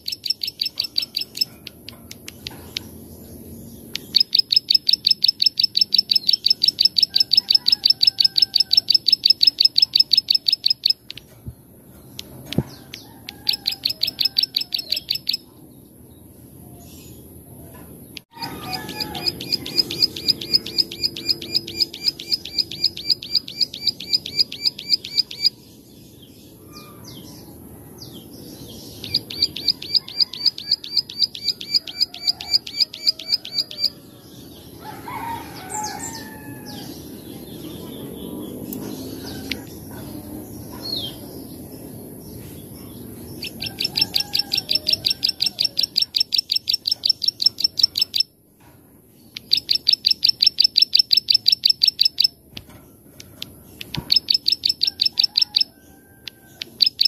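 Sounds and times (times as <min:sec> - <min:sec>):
bird clicking song: 0:00.0 - 0:03.0, 0:03.9 - 0:11.4, 0:12.0 - 0:15.4, 0:19.0 - 0:25.5, 0:38.6 - 0:40.1, 0:43.4 - 0:48.3, 0:49.3 - 0:57.0.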